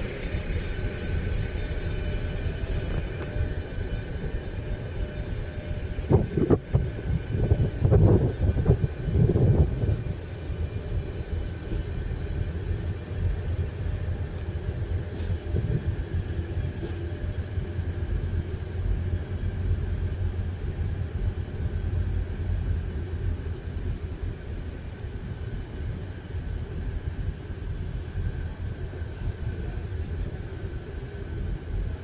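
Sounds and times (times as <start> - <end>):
diesel train passing slowly: 0.0 - 32.0.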